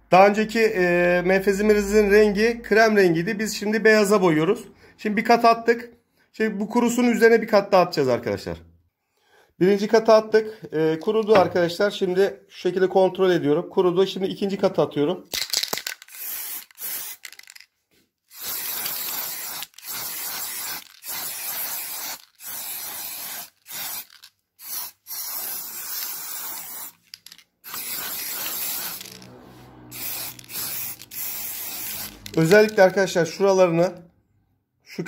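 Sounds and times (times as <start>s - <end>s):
aerosol spray can bursts: 16.0s - 17.3s, 18.3s - 27.0s, 27.6s - 29.3s, 29.9s - 32.9s.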